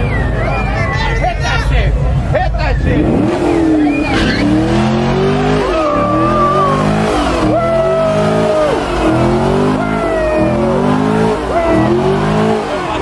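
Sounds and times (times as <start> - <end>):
car engine revving hard: 2.2 - 13.0
tyres squealing: 2.8 - 13.0.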